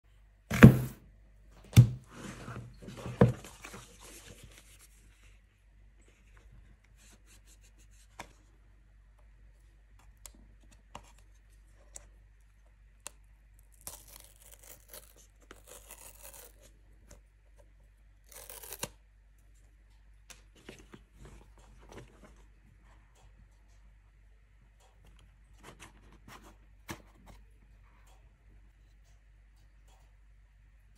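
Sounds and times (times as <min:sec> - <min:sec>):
knocks on cardboard box: 0:00.5 - 0:01.0
paper seal strips ripping: 0:13.7 - 0:16.7, 0:18.2 - 0:19.0.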